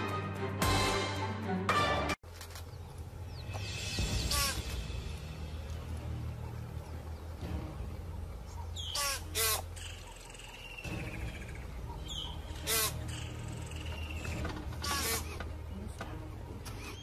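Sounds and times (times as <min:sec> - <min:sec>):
eagle screeching: 0:08.8 - 0:15.4.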